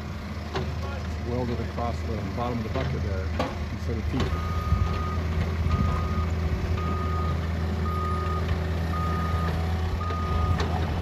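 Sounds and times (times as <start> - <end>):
diesel engine running: 0.0 - 11.0
backup alarm beeping: 4.3 - 10.6.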